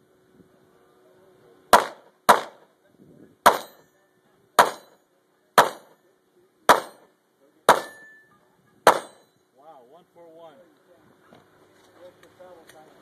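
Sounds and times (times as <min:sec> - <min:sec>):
pistol shots: 0:01.7 - 0:02.6, 0:03.4 - 0:03.8, 0:04.6 - 0:05.0, 0:05.6 - 0:06.0, 0:06.7 - 0:07.0, 0:07.7 - 0:08.1, 0:08.9 - 0:09.2.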